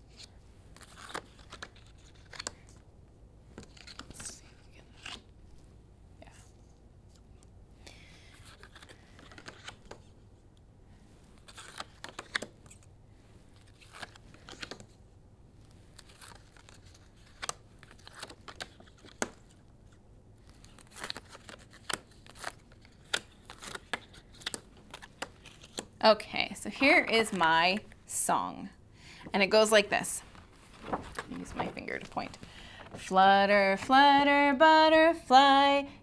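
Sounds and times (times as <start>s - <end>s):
paper rustling and crinkling: 0.1s - 2.8s, 8.3s - 10.1s, 11.4s - 12.9s, 13.5s - 15.0s, 15.8s - 26.0s, 30.1s - 33.1s.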